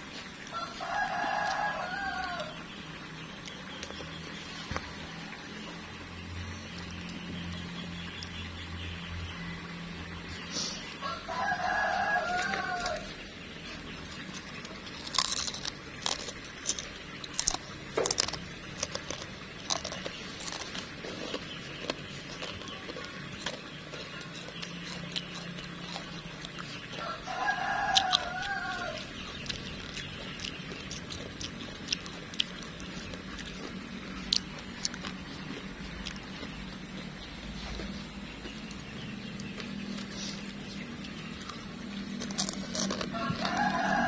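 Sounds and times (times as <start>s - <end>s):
rooster crowing: 0.5s - 2.6s, 11.0s - 13.2s, 26.9s - 29.1s, 42.4s - 44.0s.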